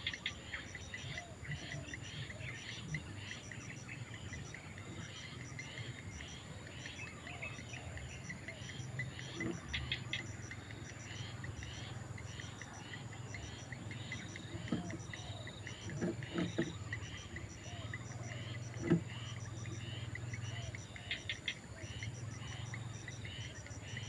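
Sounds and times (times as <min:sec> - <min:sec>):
birds chirping: 0:00.0 - 0:24.0
insects chirping: 0:00.0 - 0:24.0.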